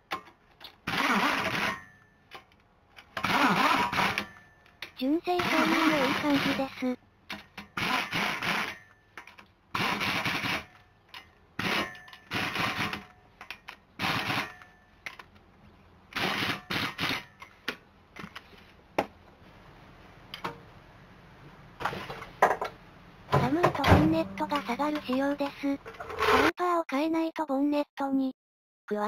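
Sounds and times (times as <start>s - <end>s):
impact wrench bursts: 0.8s - 2.0s, 3.2s - 4.4s, 5.4s - 6.7s, 7.7s - 9.0s, 9.7s - 10.8s, 11.6s - 13.1s, 14.0s - 14.7s, 16.1s - 17.4s.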